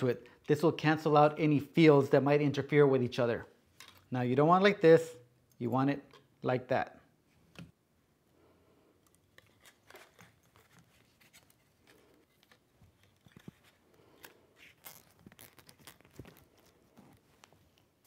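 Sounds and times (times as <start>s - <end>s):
zip tie clicking and scraping: 9.4s - 18.0s.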